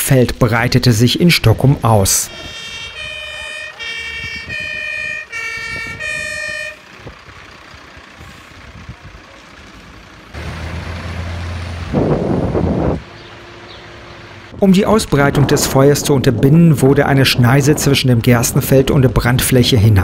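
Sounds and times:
fire engine two-tone horn: 2.1 - 7.2.

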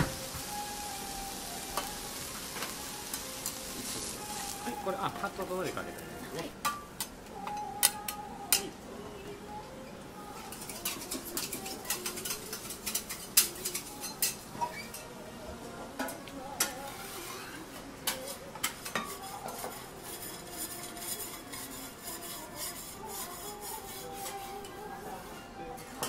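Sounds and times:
meat sizzling on griddle: 0.0 - 5.7
metal spatulas striking griddle: 6.6 - 7.1, 10.5 - 14.4.

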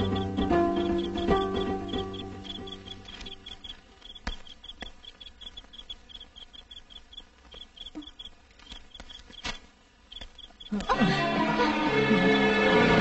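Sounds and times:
background music: 0.0 - 3.8, 10.8 - 13.0
crickets chirping: 0.0 - 13.0.

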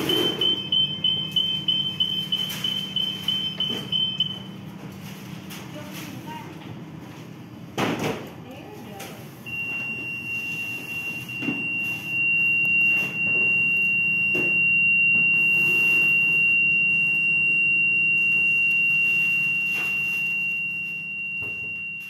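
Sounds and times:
high-pitched electronic buzzer tone: 0.0 - 4.4, 9.5 - 22.0
low machine hum: 0.0 - 22.0.

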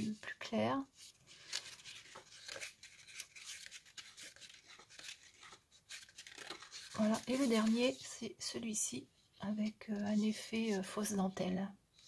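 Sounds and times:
paper rustling: 1.0 - 8.2.

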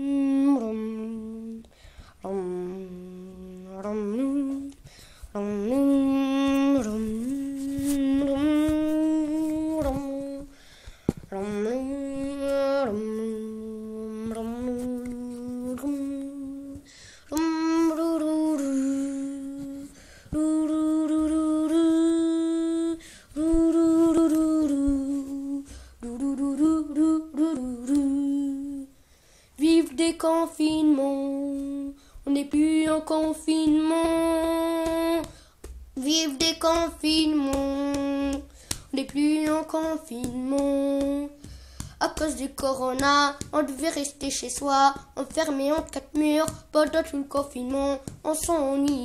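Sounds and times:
child humming a slow tune: 0.0 - 4.7, 17.4 - 28.9.

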